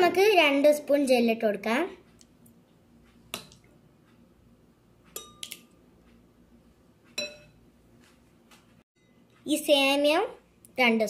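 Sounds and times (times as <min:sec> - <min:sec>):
spoon clinking against glass: 0:05.1 - 0:05.8, 0:07.2 - 0:07.6.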